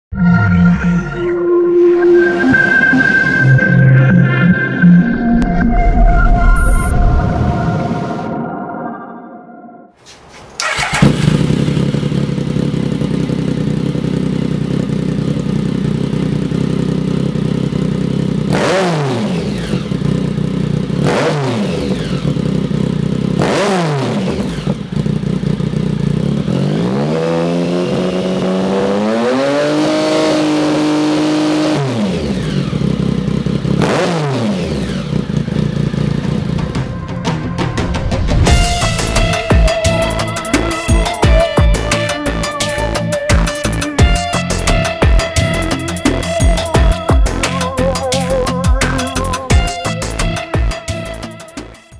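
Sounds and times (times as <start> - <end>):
motorcycle engine idling and revving: 10.4 - 51.9.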